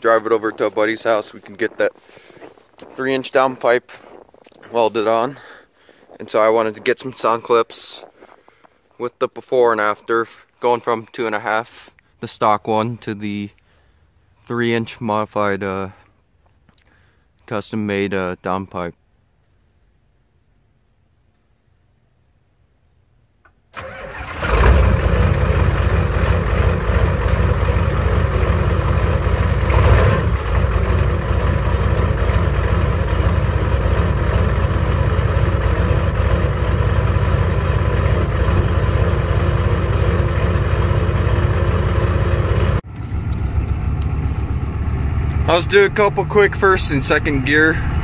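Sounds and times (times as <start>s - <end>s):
diesel engine starting and running: 23.7s - 48.0s.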